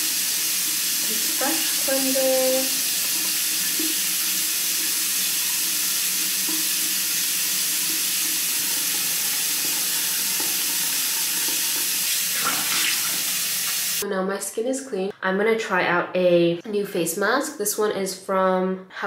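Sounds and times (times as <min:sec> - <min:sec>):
tap water running into sink: 0:00.0 - 0:14.0.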